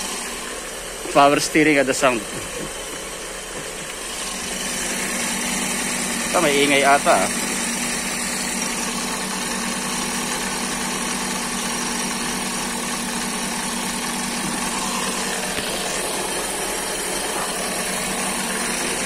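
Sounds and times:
car engine idling: 0:00.0 - 0:19.0.

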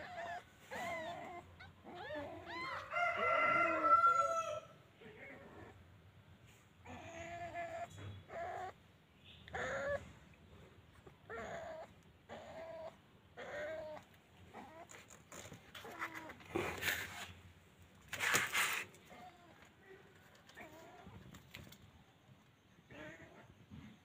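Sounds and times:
kittens mewing: 0:09.5 - 0:10.2, 0:11.0 - 0:17.3
rustling handling noises: 0:14.6 - 0:22.0.

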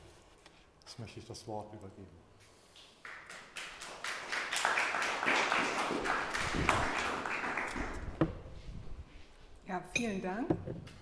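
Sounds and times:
audience applauding: 0:02.8 - 0:08.2.

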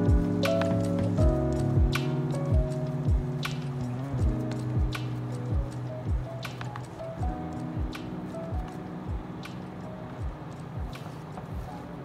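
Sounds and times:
deep kick drum: 0:00.0 - 0:00.5, 0:01.2 - 0:03.5, 0:04.2 - 0:06.3, 0:07.2 - 0:09.3, 0:10.2 - 0:11.0
held chords: 0:00.0 - 0:12.0.

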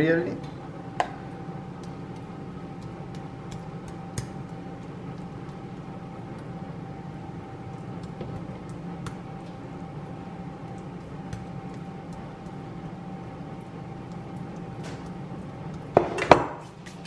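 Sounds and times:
machine hum with high whine: 0:00.0 - 0:17.0.

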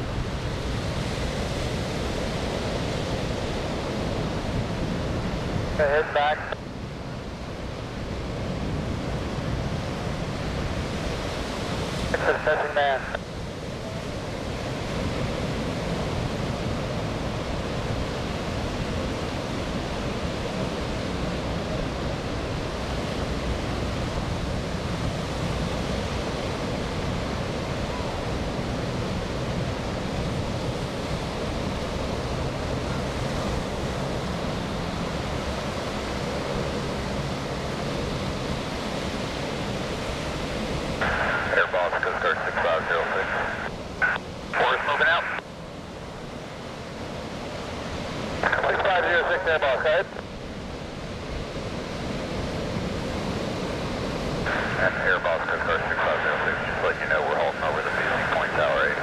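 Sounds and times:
surf: 0:00.0 - 0:06.6, 0:07.5 - 0:59.0
distant propeller aircraft drone: 0:00.0 - 0:59.0
wind: 0:00.0 - 0:59.0.

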